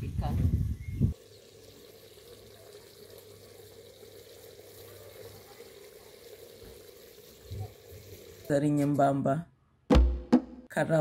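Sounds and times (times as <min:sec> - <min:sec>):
stew bubbling in a pot: 0:00.6 - 0:08.5.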